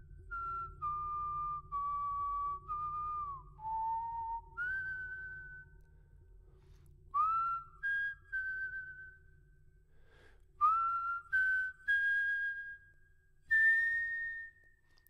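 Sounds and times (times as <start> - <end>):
whistle-like melody: 0.0 - 5.8, 7.2 - 9.6, 10.6 - 15.0
faint low drone: 0.0 - 11.3.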